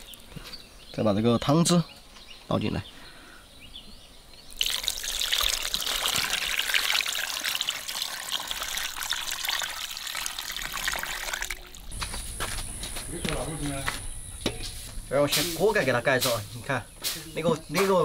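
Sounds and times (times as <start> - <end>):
liquid pouring and splashing: 4.5 - 12.0.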